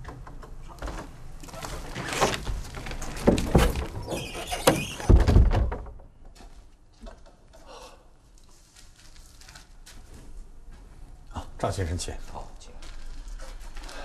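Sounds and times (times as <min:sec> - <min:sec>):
wooden door opening and shutting: 0:00.0 - 0:06.4
door scraping: 0:00.8 - 0:05.7
heavy wooden knocks and thuds: 0:02.2 - 0:06.3.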